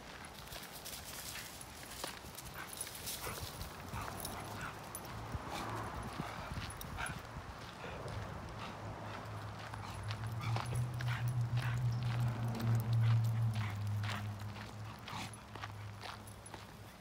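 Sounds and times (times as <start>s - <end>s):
footsteps in dry leaves: 0.0s - 4.2s.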